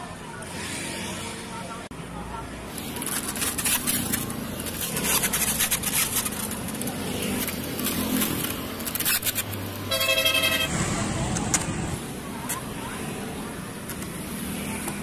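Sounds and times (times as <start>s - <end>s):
street traffic: 0.0s - 15.0s
knife cutting watermelon rind: 2.8s - 9.8s.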